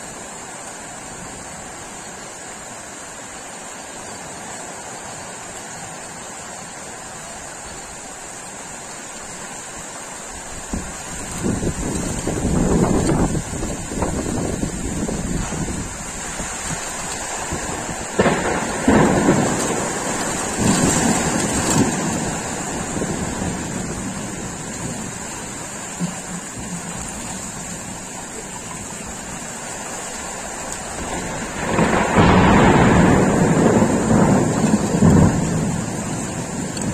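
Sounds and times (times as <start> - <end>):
rain hissing: 0.0 - 36.9
thunder cracks and rumbles: 10.7 - 27.0, 30.9 - 36.9.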